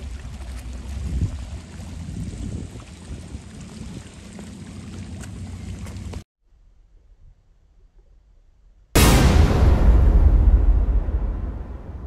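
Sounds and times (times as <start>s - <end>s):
water lapping against rocks: 0.0s - 6.2s
steady low rumble: 9.0s - 12.0s.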